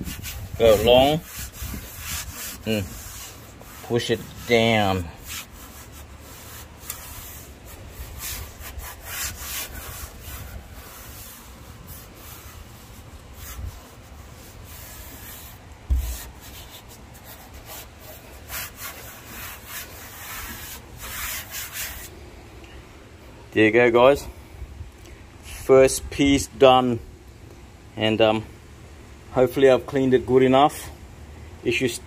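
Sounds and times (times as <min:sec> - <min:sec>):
hands scuffing foam sheet: 0:00.0 - 0:22.1
thump: 0:15.9 - 0:16.3.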